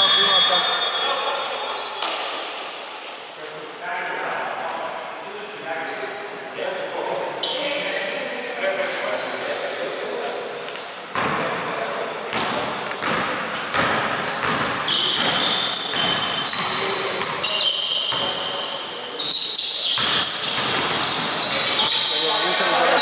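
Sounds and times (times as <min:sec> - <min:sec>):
sneakers squeaking: 0:00.0 - 0:03.8, 0:04.5 - 0:05.0, 0:07.3 - 0:08.0, 0:09.0 - 0:09.6, 0:12.3 - 0:23.0
basketball bouncing on hardwood: 0:12.3 - 0:17.3, 0:20.0 - 0:21.3.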